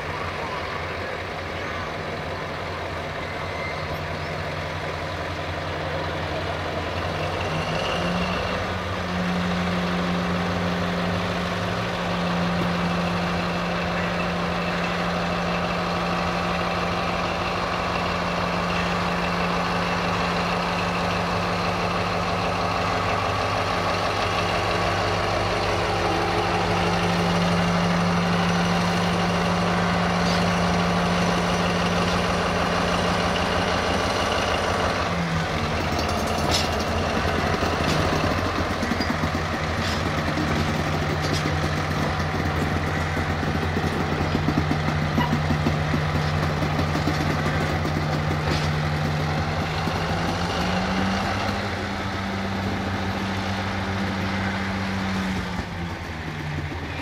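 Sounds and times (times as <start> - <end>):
locomotive engine running under load: 0.0 - 57.0
wagon wheels rolling on track: 34.6 - 57.0.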